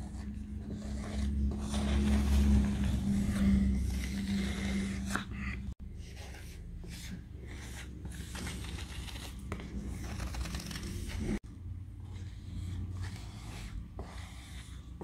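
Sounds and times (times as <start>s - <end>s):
squeegee scraping vinyl: 0.0s - 5.6s.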